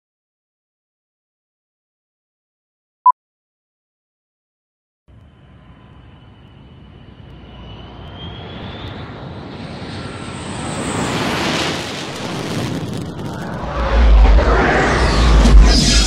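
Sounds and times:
aircraft engine roar: 5.1s - 16.0s
heavy low rumble: 12.1s - 16.0s.

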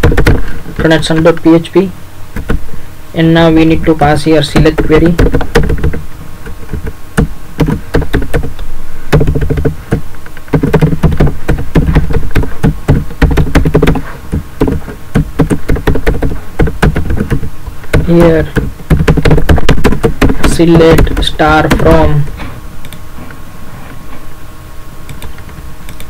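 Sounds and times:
typing on computer keyboard: 5.2s - 6.9s, 14.6s - 22.1s.

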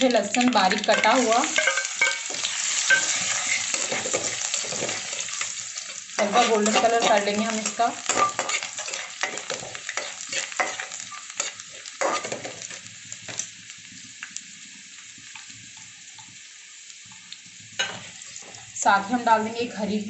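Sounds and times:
garlic sizzling in hot oil: 0.0s - 20.0s
steel spoon scraping a pan: 0.9s - 13.4s, 17.8s - 18.6s.

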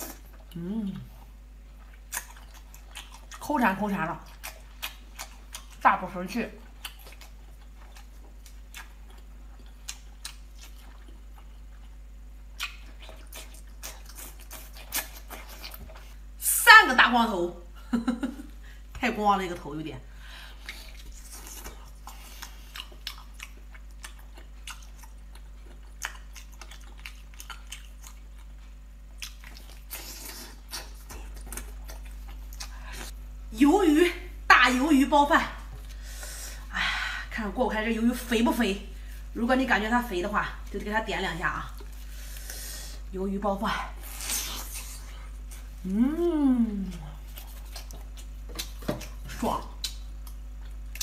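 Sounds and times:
wet mouth chewing sounds: 0.0s - 3.5s, 4.2s - 5.8s, 6.6s - 16.3s, 20.6s - 33.2s, 46.8s - 51.0s
wet chewing mouth clicks: 6.8s - 11.9s, 12.5s - 16.1s, 47.3s - 51.0s.

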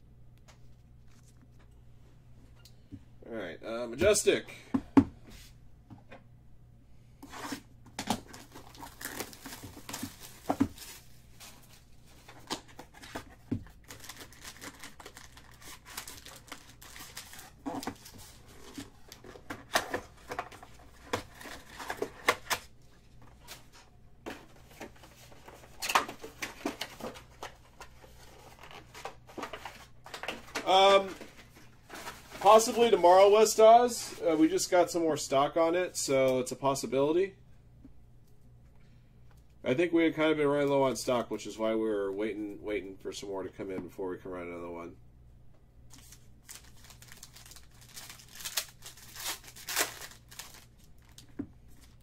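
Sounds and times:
card packs handled: 7.3s - 34.6s, 45.9s - 52.0s
plastic wrapping tearing and crinkling: 8.2s - 11.1s, 13.7s - 22.6s, 46.0s - 52.0s.

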